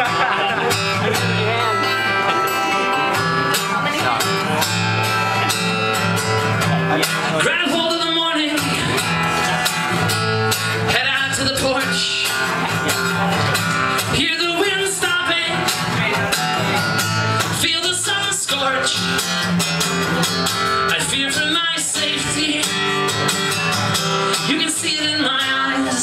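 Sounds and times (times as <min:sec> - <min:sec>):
acoustic guitar strumming: 0:00.0 - 0:26.0
man singing: 0:06.6 - 0:09.5, 0:10.8 - 0:19.5, 0:20.2 - 0:23.2, 0:24.2 - 0:26.0.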